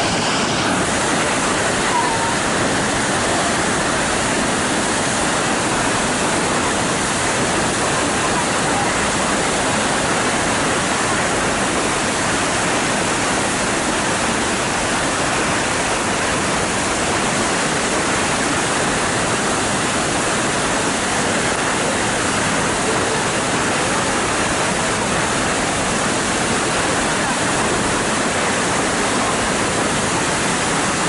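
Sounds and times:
waterfall rushing: 0:00.0 - 0:31.0.

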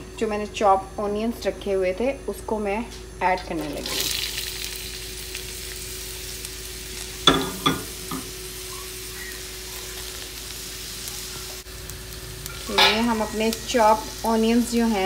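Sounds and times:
onions sizzling in hot oil: 0:03.3 - 0:15.0.

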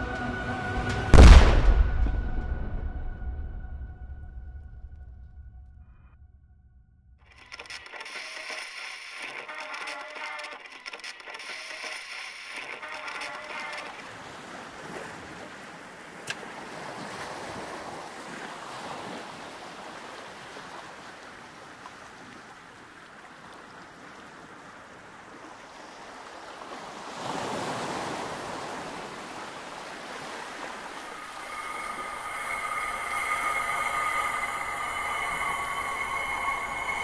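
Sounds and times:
sharp click: 0:07.3 - 0:14.0
steady rushing noise: 0:30.9 - 0:37.0.

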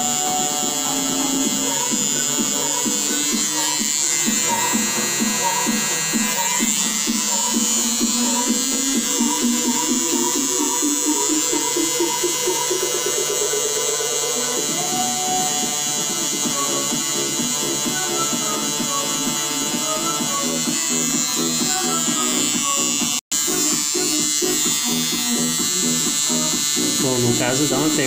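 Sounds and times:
music playing: 0:00.0 - 0:28.0
tattoo machine buzzing: 0:00.0 - 0:28.0.

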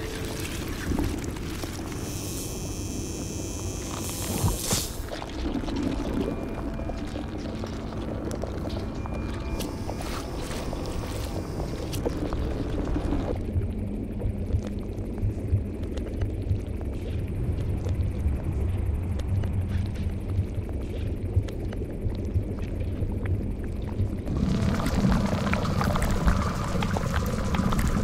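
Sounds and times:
low rumbling drone: 0:00.0 - 0:28.0
bubbling sound: 0:03.9 - 0:18.0, 0:20.4 - 0:28.0.

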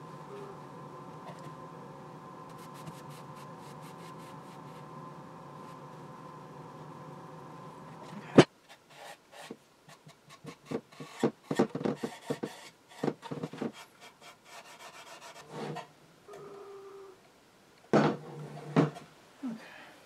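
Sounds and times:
rag wiping wood: 0:02.5 - 0:04.9.

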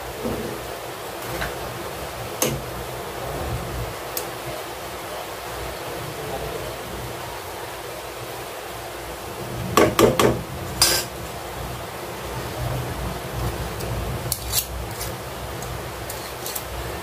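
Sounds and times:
steady hiss: 0:00.0 - 0:17.0
metal utensil clanking on pot: 0:09.8 - 0:11.1.

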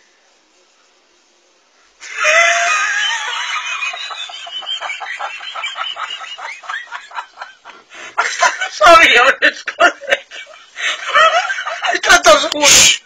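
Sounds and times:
person shrieking laughter: 0:02.0 - 0:04.7.

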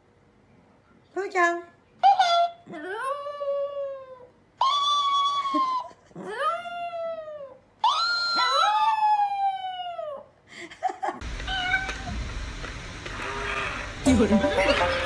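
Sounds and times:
steady low hum: 0:11.2 - 0:15.0.

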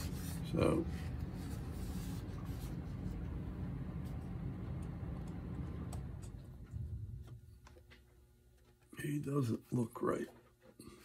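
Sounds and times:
steady low rumble: 0:00.0 - 0:08.6.

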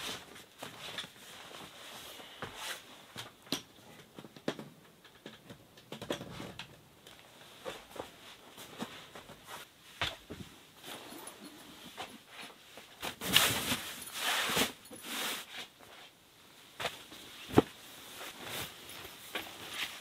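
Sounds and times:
mattress pad rustling: 0:07.4 - 0:20.0.

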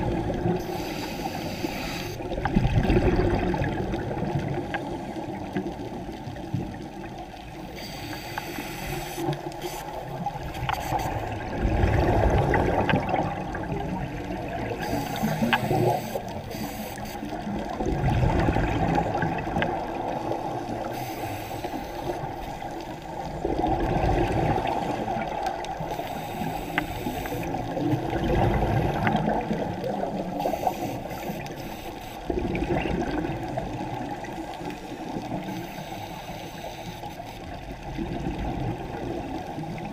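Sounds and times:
muffled water noise: 0:00.0 - 0:39.9
faint ticks: 0:00.2 - 0:02.6, 0:04.4 - 0:11.4, 0:14.6 - 0:17.8, 0:18.9 - 0:23.7, 0:24.6 - 0:28.0, 0:29.0 - 0:32.3, 0:33.6 - 0:38.0
gurgling rush of exhaled bubbles: 0:02.2 - 0:06.8, 0:10.1 - 0:16.0, 0:17.3 - 0:20.9, 0:22.1 - 0:25.9, 0:27.4 - 0:30.5, 0:32.3 - 0:35.5, 0:37.8 - 0:39.9.

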